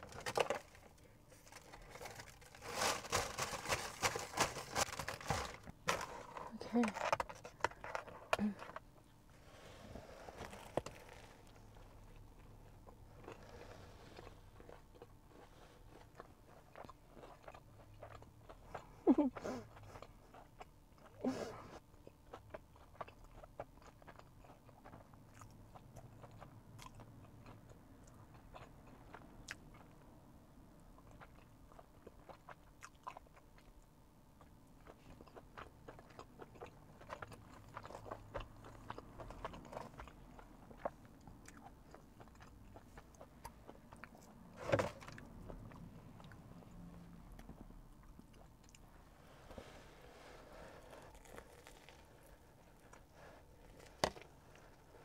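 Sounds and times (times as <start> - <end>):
wet chewing: 10.4 - 21.2, 31.0 - 48.9, 50.5 - 55.0
fried batter crunching: 50.8 - 54.6.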